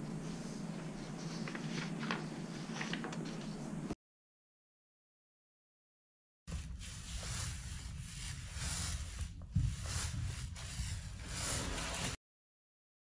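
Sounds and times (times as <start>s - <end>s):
paint roller swishing on wall: 6.5s - 12.2s.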